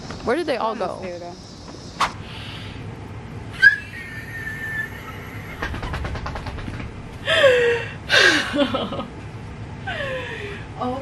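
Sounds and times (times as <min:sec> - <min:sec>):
woman squealing and shrieking: 0:03.6 - 0:05.6
fast run of taps: 0:05.4 - 0:07.0.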